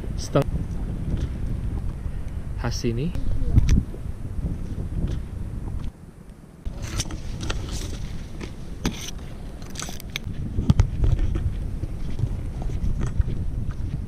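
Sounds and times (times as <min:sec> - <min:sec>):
wind rumbling on microphone: 0:00.0 - 0:14.0
wet grass rustling: 0:06.7 - 0:14.0.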